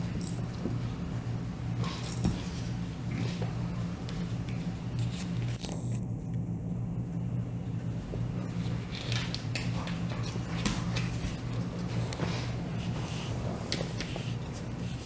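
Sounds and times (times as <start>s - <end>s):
steady low hum: 0.0s - 15.0s
paws and claws scuffing on wood floor: 8.5s - 15.0s.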